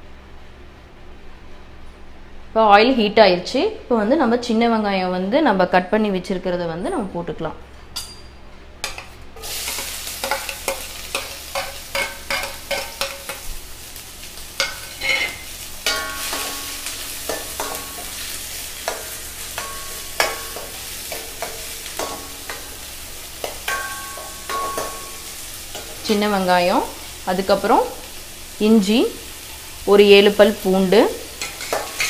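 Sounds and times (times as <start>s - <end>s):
shallots sizzling in hot oil: 9.4s - 32.0s
metal pan ringing: 14.6s - 22.7s, 23.4s - 25.9s
spoon scraping metal pan: 14.6s - 22.7s, 31.4s - 32.0s.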